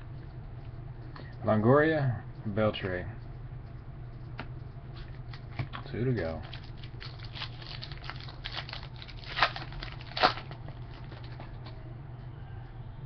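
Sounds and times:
foil wrapper crinkling: 6.3s - 11.6s
foil pack ripping: 6.4s - 11.4s.

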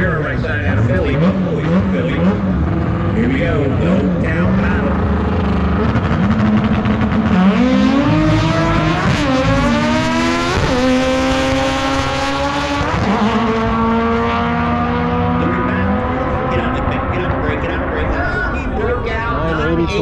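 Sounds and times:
race car accelerating: 0.0s - 20.0s.

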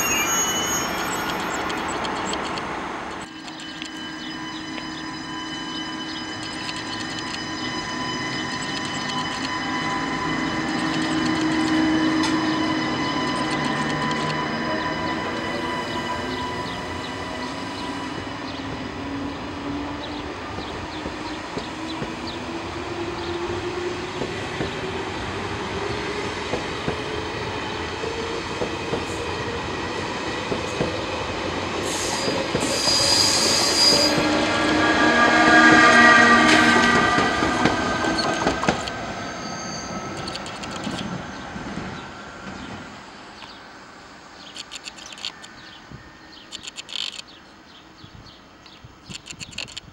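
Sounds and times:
train motors whining: 0.0s - 18.0s, 32.0s - 41.3s
high squeals: 0.0s - 18.8s, 31.9s - 41.2s
train wheels running: 0.0s - 47.3s, 48.6s - 49.9s.

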